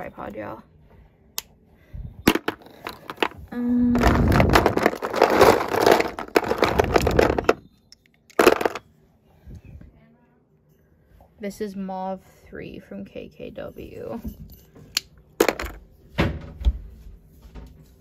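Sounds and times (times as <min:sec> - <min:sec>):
plastic makeup items rattling: 0:02.3 - 0:07.7, 0:08.3 - 0:08.8.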